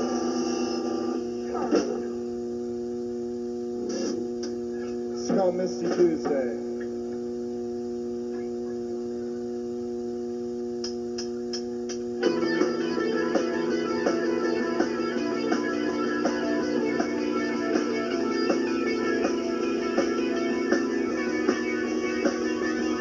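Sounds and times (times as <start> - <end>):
electrical mains hum: 0.0 - 23.0
guitar playing: 12.2 - 23.0.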